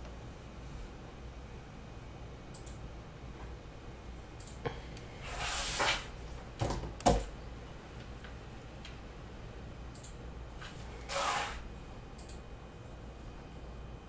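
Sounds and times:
low room hum: 0.0 - 14.0
sliding rustle on table: 5.2 - 6.2, 10.6 - 11.6.

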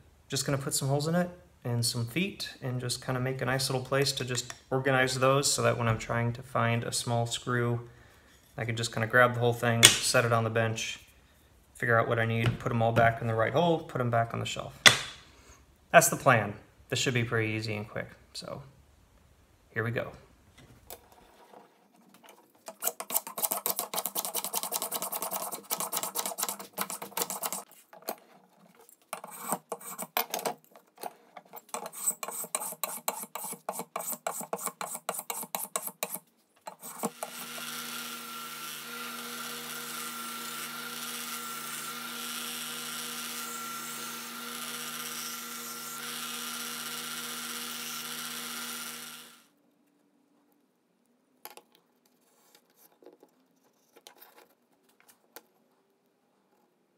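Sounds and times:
small power tool running: 37.0 - 49.5.

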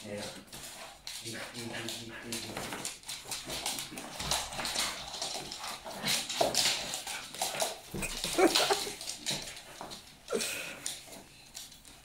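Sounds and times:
dog claws scrabbling on wooden floor: 0.1 - 12.0
dog whining: 7.9 - 9.0.

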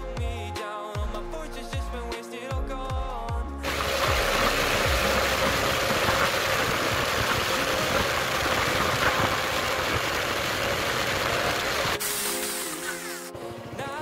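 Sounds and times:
motorcycle engine running: 3.6 - 12.0.

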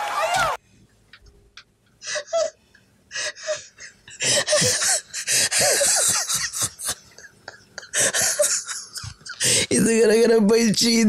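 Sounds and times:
man laughing breathlessly: 2.0 - 9.7.

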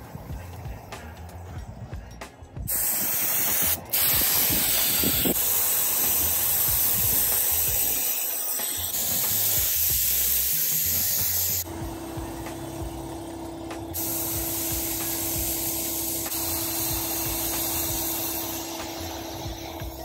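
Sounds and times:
spray gun hissing: 2.7 - 11.7, 13.9 - 20.0.

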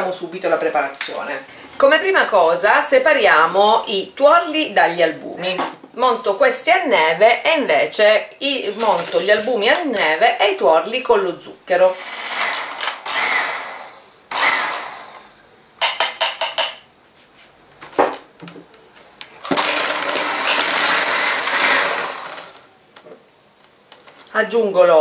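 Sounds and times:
electric hand mixer whisking: 11.9 - 15.2, 19.5 - 22.7.

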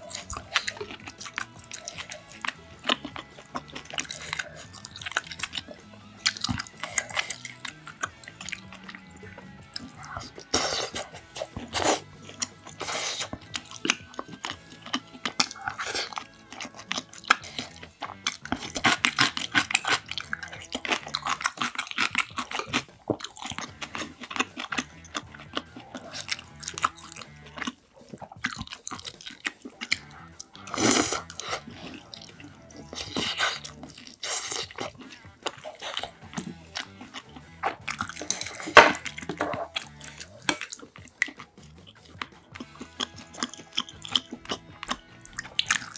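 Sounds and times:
person chewing food: 0.0 - 45.9
wet mouth noises: 0.0 - 45.9
chopsticks clicking on dishes: 33.2 - 45.9.

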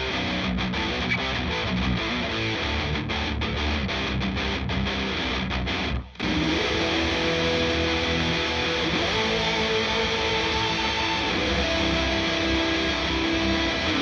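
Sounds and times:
distorted rhythm guitar chords: 0.0 - 14.0
lead guitar sustained notes: 0.0 - 14.0.

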